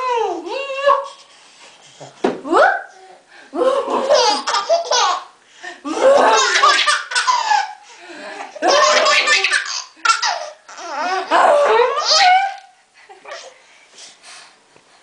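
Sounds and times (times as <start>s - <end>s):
baby laughing: 3.9s - 5.3s, 5.9s - 12.6s.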